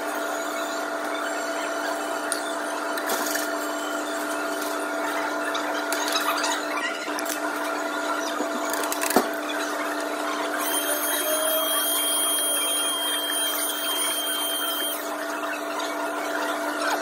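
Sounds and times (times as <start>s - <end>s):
electric air blower whining: 10.6s - 15.2s
steady hum: 10.6s - 16.5s.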